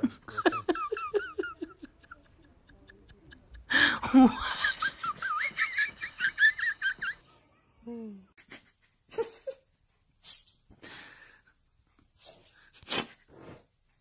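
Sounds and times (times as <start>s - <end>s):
people laughing: 0.0s - 7.4s.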